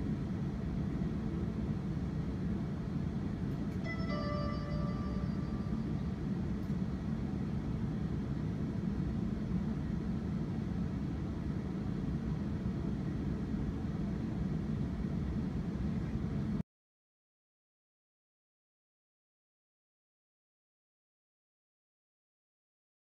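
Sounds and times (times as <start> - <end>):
tram rumbling: 0.0 - 16.6.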